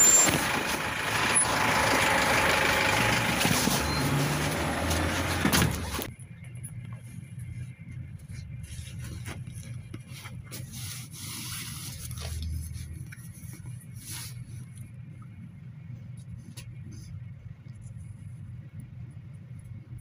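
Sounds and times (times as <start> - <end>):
scraping and rattling: 0.0 - 6.1
engine and road rumble: 0.0 - 20.0.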